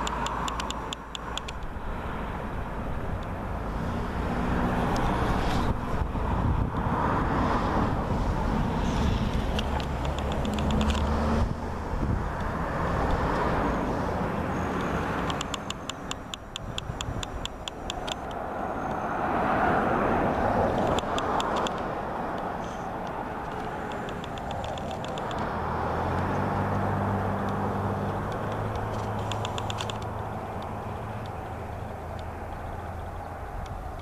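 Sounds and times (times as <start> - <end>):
fast high-pitched clicking: 0.0 - 1.7, 9.3 - 11.1, 14.8 - 19.0, 20.8 - 25.5, 27.5 - 34.0
cars passing: 0.0 - 34.0
low engine hum: 0.0 - 34.0.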